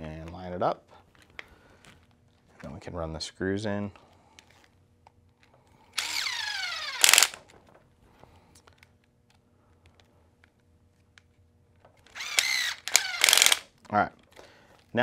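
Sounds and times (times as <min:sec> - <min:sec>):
electric screwdriver motor whine: 0:06.0 - 0:07.4, 0:12.1 - 0:13.7.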